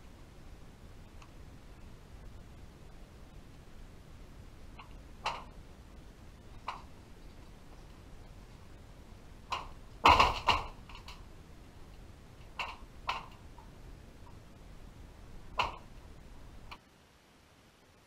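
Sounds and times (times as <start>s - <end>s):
steady low hiss: 0.0s - 18.0s
underwater knocks and clicks: 12.4s - 13.7s, 15.6s - 15.9s.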